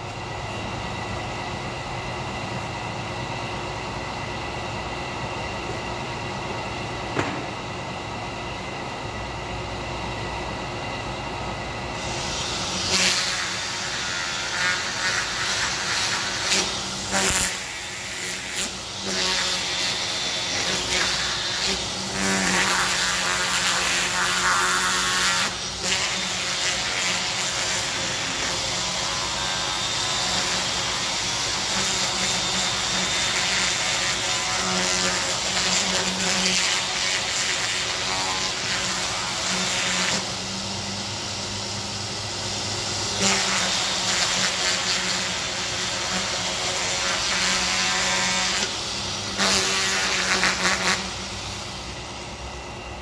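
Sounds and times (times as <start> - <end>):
steady mechanical hum: 0.0 - 53.0
power grinder sanding wood: 12.0 - 40.8, 42.5 - 51.8.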